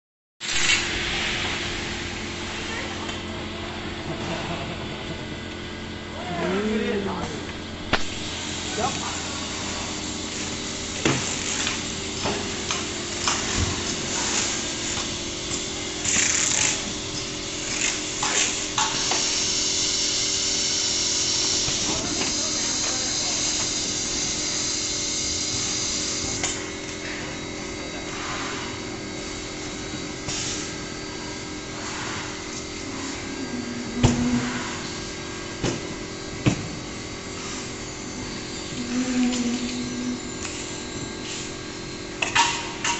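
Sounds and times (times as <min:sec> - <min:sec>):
steady machine hum: 0:00.4 - 0:42.9
power tools whirring: 0:08.0 - 0:27.1, 0:31.8 - 0:42.5.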